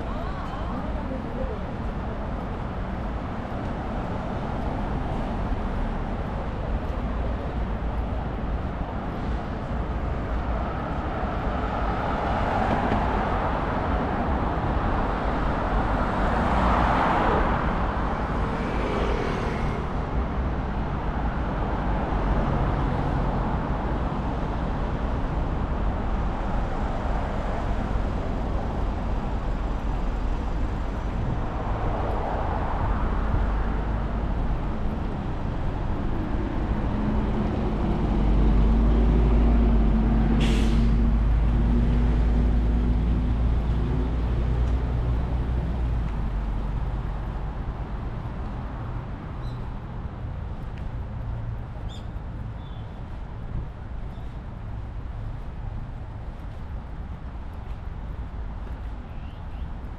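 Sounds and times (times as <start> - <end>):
road traffic noise: 0.0 - 59.9.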